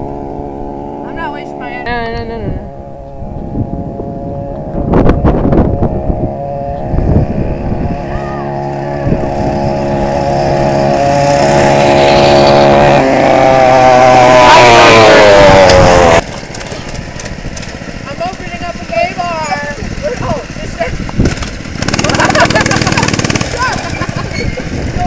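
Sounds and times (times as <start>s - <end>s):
mini bike engines running: 6.9s - 25.0s.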